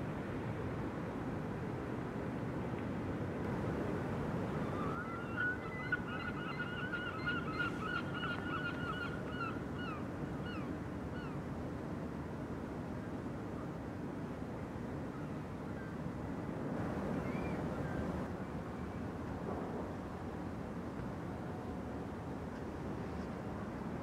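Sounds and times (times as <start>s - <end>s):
bird calling: 4.7s - 11.4s.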